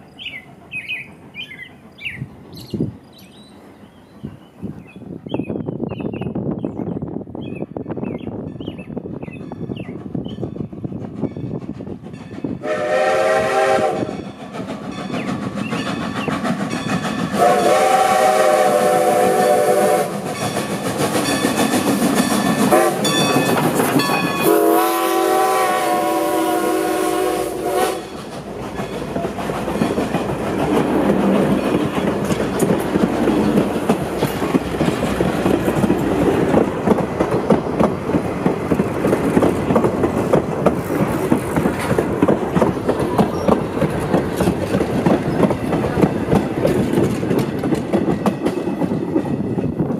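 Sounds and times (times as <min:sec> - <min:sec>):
train wheels clattering over rails: 0:09.2 - 0:49.9
train horn blasts: 0:12.6 - 0:14.3, 0:17.4 - 0:20.3, 0:22.6 - 0:23.4, 0:24.2 - 0:28.2.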